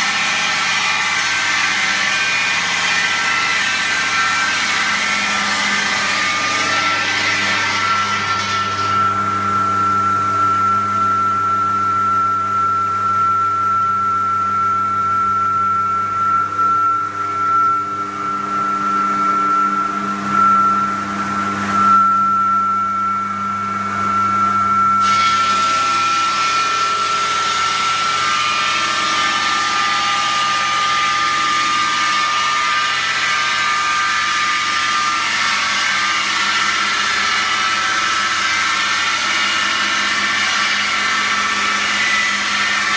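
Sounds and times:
brick saw cutting bricks: 0.0 - 10.1, 25.0 - 42.9.

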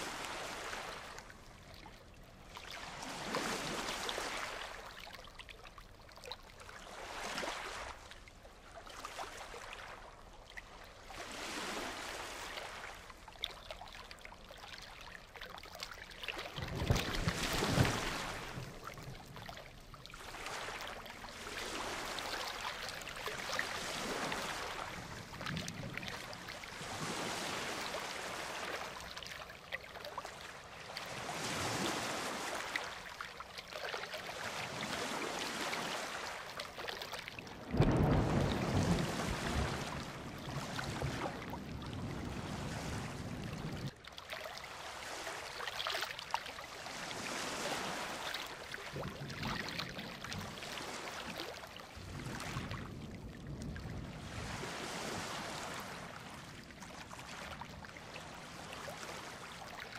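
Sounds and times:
ocean surf breaking: 17.2 - 18.7, 37.6 - 43.4
deep thunder rumble: 37.6 - 39.9.

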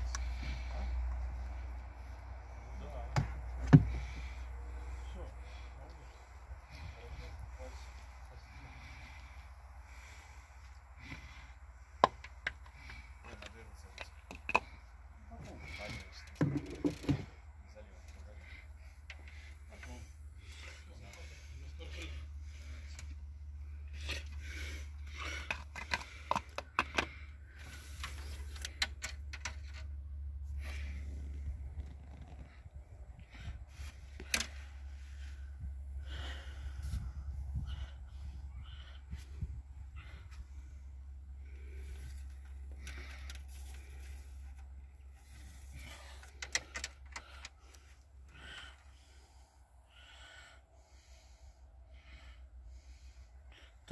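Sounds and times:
glugs and clicks of air: 11.0 - 14.9, 15.7 - 17.4, 23.9 - 30.0, 34.1 - 34.6, 45.8 - 48.1.

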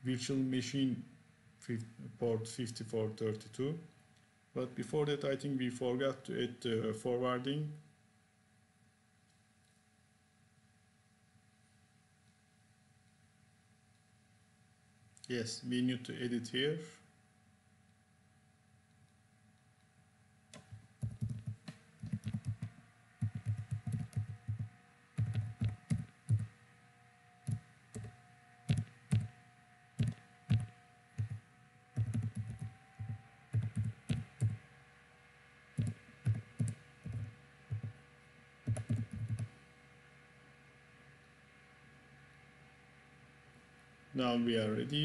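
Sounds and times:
typing on computer keyboard: 20.5 - 26.5, 27.5 - 29.4, 30.0 - 31.4, 32.0 - 34.6, 35.8 - 38.0, 38.7 - 39.5.

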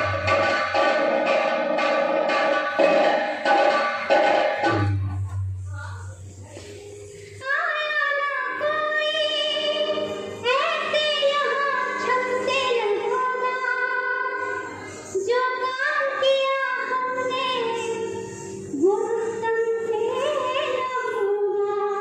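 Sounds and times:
instrumental accompaniment: 0.0 - 7.5
woman singing: 18.8 - 22.0.

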